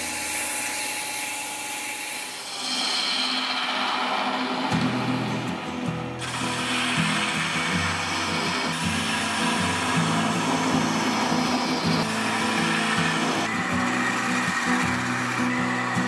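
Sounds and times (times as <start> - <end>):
sandpaper hissing on spinning wood: 0.0 - 16.0
background music with low notes: 4.8 - 16.0.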